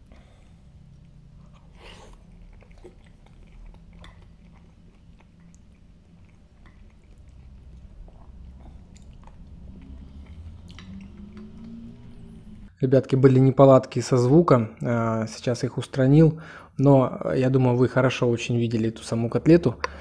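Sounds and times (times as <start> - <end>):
person chewing with wet smacks: 0.0 - 12.7
steady low hum: 0.0 - 12.8.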